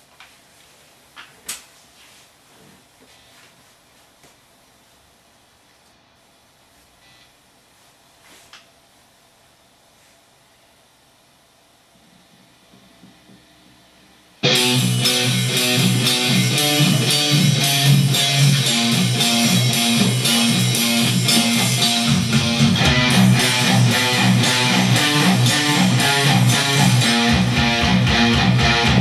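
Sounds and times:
distorted electric guitar riff: 14.4s - 29.0s.

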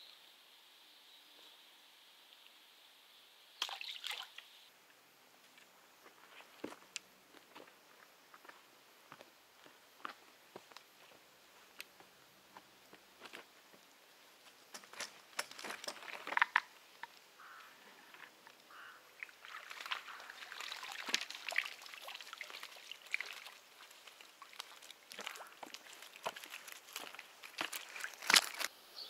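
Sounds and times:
water splashing and trickling: 3.6s - 4.7s, 14.8s - 28.7s
clicks and rustles: 14.6s - 17.2s, 24.6s - 28.7s.

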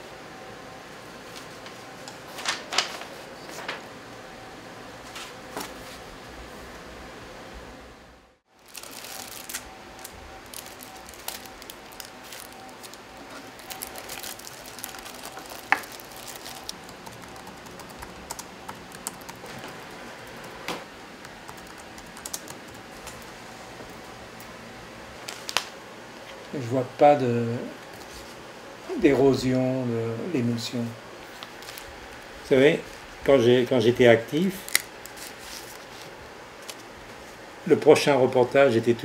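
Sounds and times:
faint steady hum: 0.0s - 39.0s
papers and files rustling: 1.2s - 3.9s, 8.6s - 20.9s, 31.2s - 31.9s, 34.6s - 37.4s.

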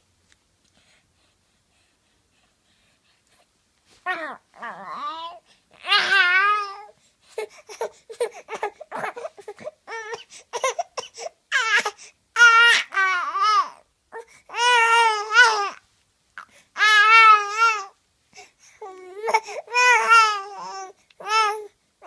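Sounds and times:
baby crying wails: 4.1s - 6.9s, 8.5s - 10.8s, 11.5s - 13.8s, 14.5s - 15.8s, 16.8s - 17.9s, 18.8s - 21.7s
baby babbling: 4.1s - 10.8s, 11.5s - 15.8s, 16.4s - 17.9s, 18.8s - 21.7s.

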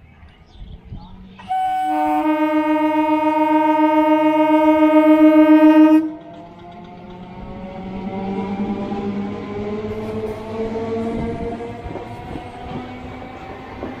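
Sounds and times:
train horn blast: 1.4s - 6.4s.

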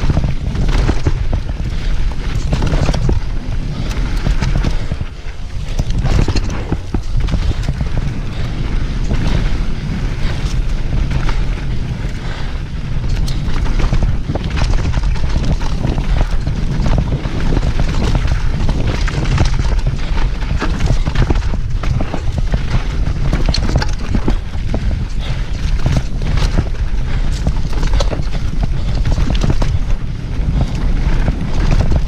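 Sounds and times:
bike clattering over bumps: 0.0s - 32.0s
wind and tyre rumble: 0.0s - 32.0s.

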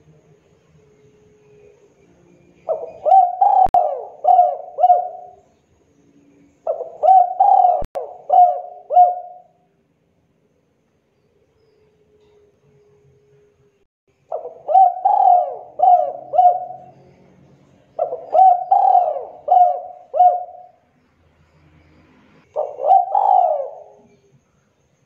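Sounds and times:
dove cooing: 2.6s - 5.5s, 6.7s - 9.6s, 14.3s - 17.1s, 18.0s - 20.8s, 22.4s - 24.2s.

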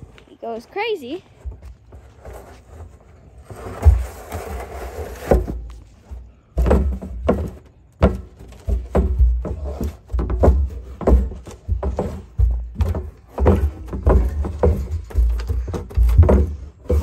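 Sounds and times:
scraping rustle: 0.0s - 17.0s
plastic barrel knocking on rails: 6.5s - 17.0s.

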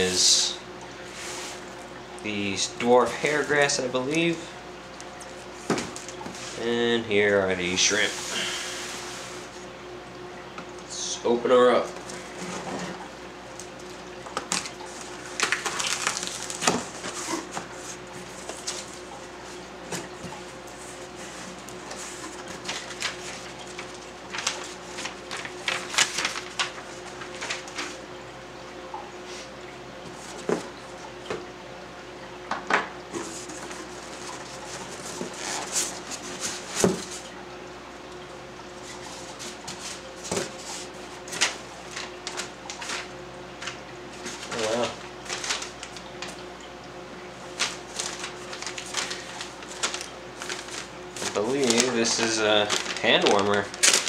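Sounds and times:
paper packing rustling: 2.4s - 4.4s, 13.6s - 28.1s, 33.1s - 37.2s, 38.9s - 46.4s, 47.4s - 54.0s
packing tape tearing: 14.4s - 17.6s, 34.7s - 37.0s, 47.6s - 54.0s.

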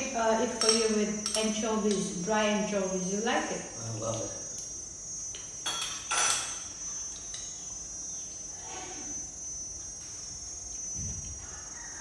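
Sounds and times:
insects chirring: 0.0s - 12.0s
spoon clinking against bowl: 0.6s - 2.1s.

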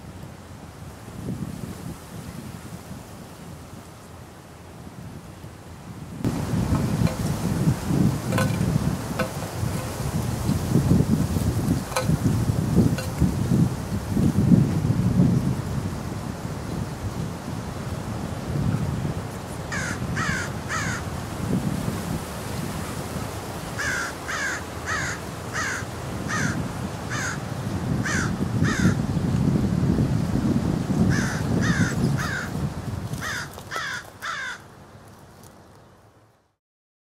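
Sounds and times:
crow cawing: 19.7s - 21.0s, 23.8s - 27.4s, 28.0s - 29.0s, 31.1s - 32.5s, 33.2s - 34.6s.

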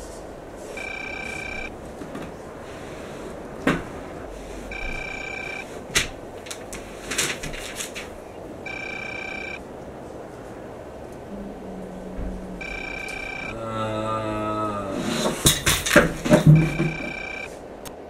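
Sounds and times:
electronic beep: 0.8s - 1.7s, 4.7s - 5.6s, 8.6s - 9.6s, 12.6s - 13.5s, 16.5s - 17.5s
sharp knocks and clatters: 15.2s - 17.4s.

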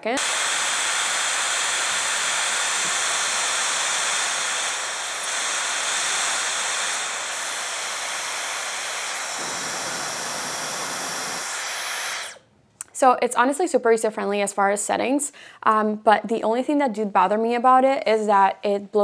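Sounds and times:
hair dryer running: 0.0s - 12.4s.

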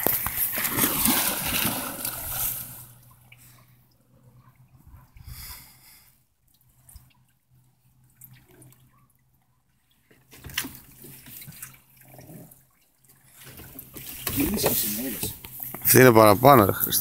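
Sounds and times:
water lapping against boat: 0.0s - 3.8s, 6.6s - 15.8s.

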